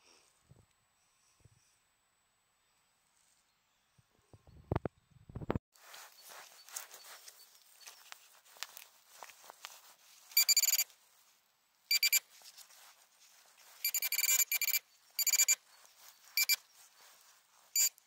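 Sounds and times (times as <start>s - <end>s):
soil scraping: 5.8s - 11.4s.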